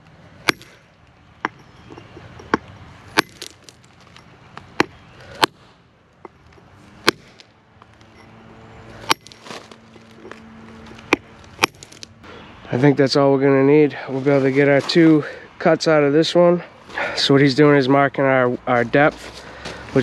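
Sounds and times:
hammer striking stone: 0:00.4 - 0:00.8, 0:03.2 - 0:03.6, 0:07.0 - 0:07.4, 0:11.1 - 0:11.8.

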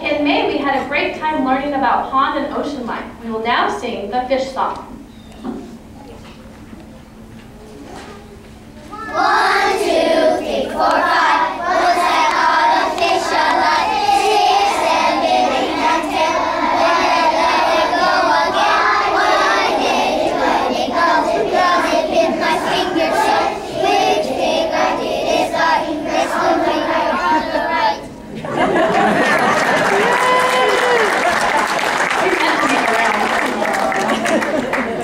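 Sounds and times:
children singing together: 0:08.9 - 0:29.8.

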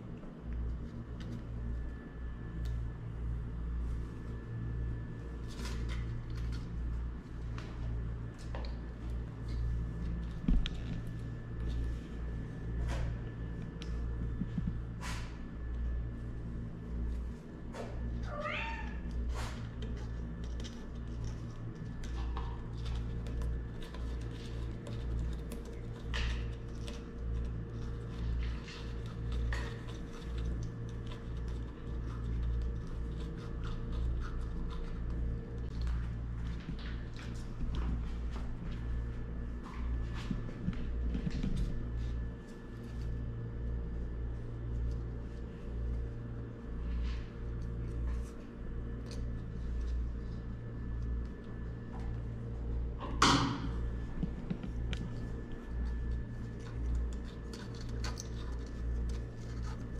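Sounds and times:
steady low hum: 0:00.0 - 0:59.9
claws scratching wood: 0:19.8 - 0:35.9, 0:54.5 - 0:59.9.

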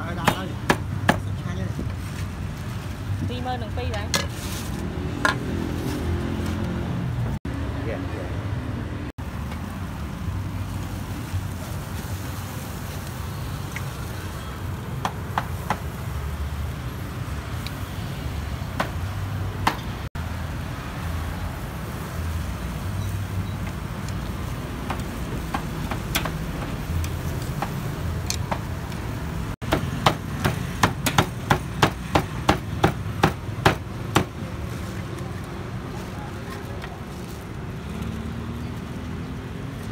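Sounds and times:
low rumble of engines: 0:00.0 - 0:39.9
street noise: 0:00.0 - 0:39.9.

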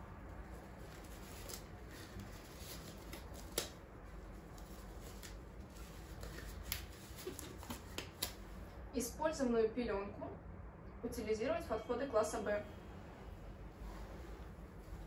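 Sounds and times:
rubber gloves rustling: 0:00.0 - 0:08.7, 0:13.7 - 0:15.0
glove snapping: 0:03.0 - 0:03.8, 0:06.3 - 0:08.4.

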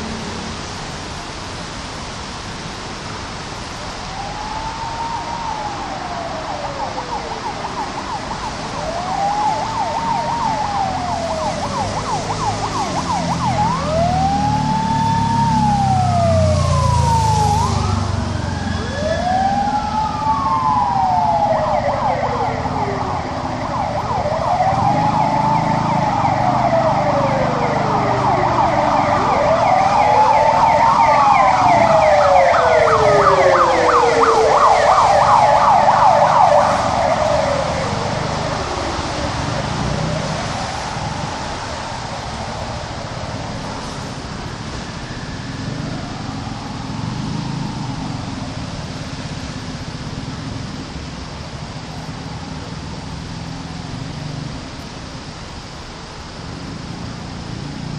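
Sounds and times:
rain hiss: 0:00.0 - 0:57.9
sirens wailing: 0:00.0 - 0:57.9.

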